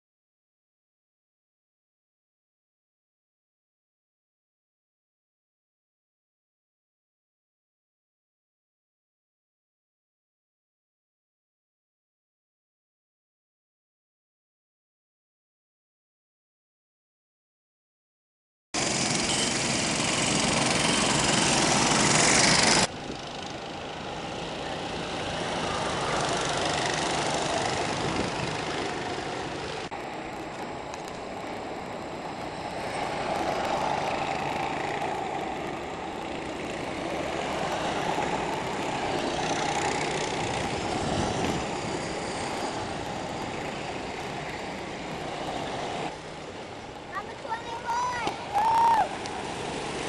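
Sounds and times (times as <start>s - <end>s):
go-kart engines racing: 18.8s - 50.0s.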